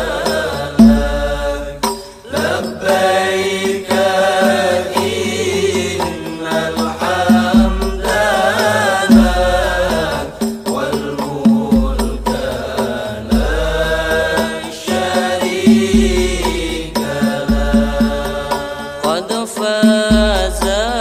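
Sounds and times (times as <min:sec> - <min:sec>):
regular drum beat: 0:00.0 - 0:21.0.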